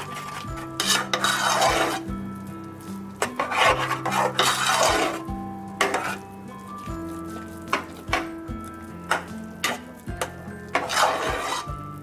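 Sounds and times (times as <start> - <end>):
ladle scraping through rice: 0.0 - 2.1, 3.2 - 6.2, 10.7 - 11.7
background music: 0.0 - 12.0.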